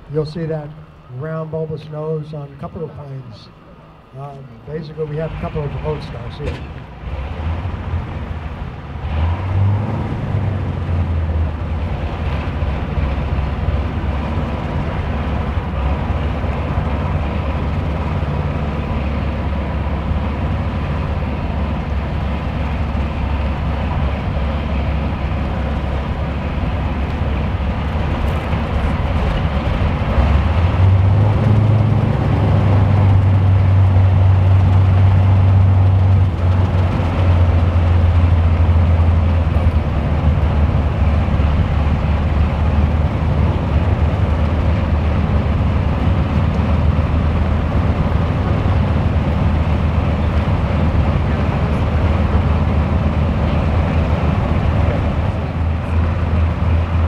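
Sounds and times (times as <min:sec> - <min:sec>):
aircraft piston engines idling: 0:00.0 - 0:07.0, 0:11.5 - 0:30.1, 0:33.2 - 0:57.0.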